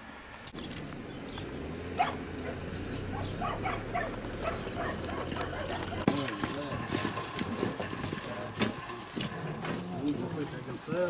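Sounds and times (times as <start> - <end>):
dogs barking and yelping: 1.9 - 6.3.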